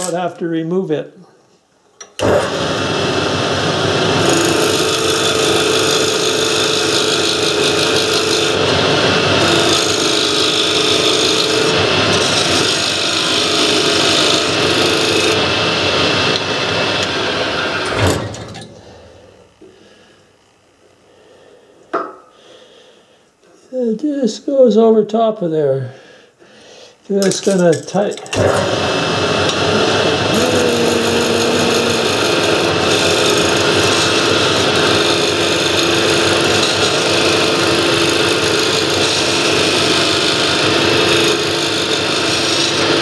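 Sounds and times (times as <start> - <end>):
lathe tool cutting wood: 2.2 - 18.6, 28.4 - 43.0
lathe motor hum: 2.2 - 19.7, 28.4 - 43.0.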